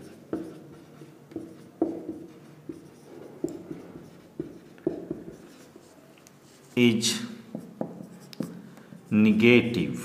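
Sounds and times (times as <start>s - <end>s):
marker pen scratching on whiteboard: 0.0s - 6.8s, 7.4s - 8.6s.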